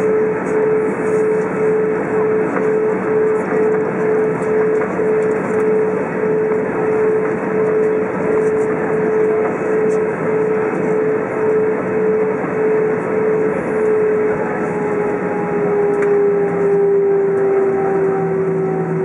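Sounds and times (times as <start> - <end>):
airliner cabin engine noise: 0.0 - 19.0
engine whine falling in pitch: 10.3 - 19.0.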